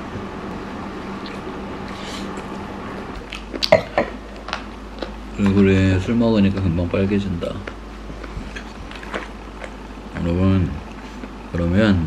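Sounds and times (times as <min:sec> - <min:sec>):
low room hum: 0:00.0 - 0:12.0
crunching fried chicken: 0:07.6 - 0:11.6.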